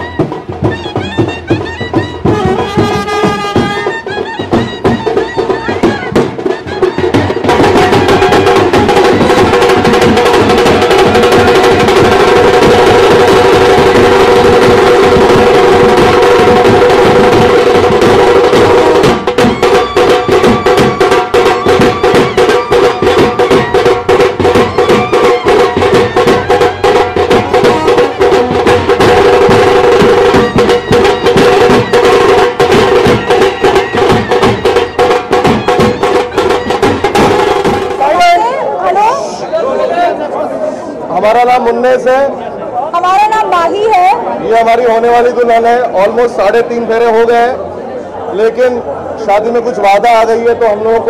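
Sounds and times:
fast dense drumming: 0:00.0 - 0:38.5
band playing loud held notes: 0:00.0 - 0:39.1.

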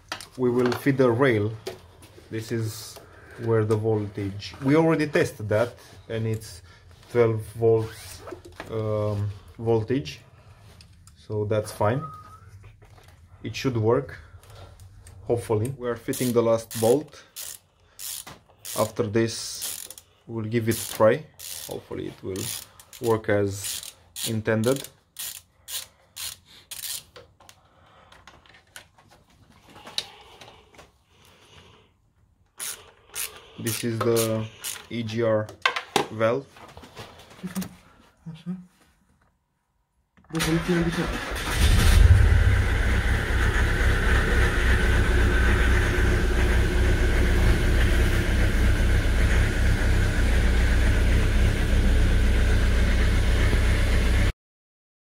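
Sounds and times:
ratchet wrench clicking: 0:16.1 - 0:20.1, 0:20.7 - 0:21.8, 0:22.4 - 0:27.2, 0:32.6 - 0:34.9
diesel engine idling: 0:41.6 - 0:54.2.

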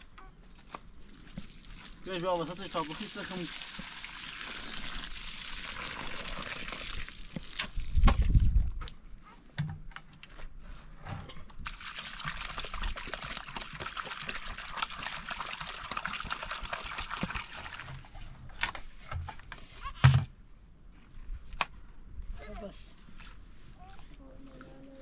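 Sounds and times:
water pouring: 0:00.6 - 0:08.5, 0:11.6 - 0:18.1.

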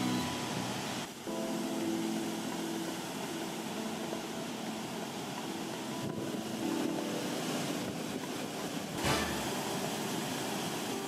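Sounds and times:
distant waterfall rushing: 0:00.0 - 0:11.0.

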